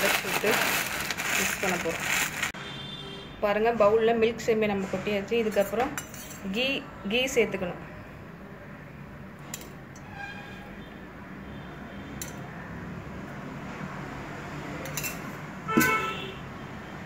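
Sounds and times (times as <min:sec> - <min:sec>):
metal spoon clinking on glass: 0:14.8 - 0:15.3.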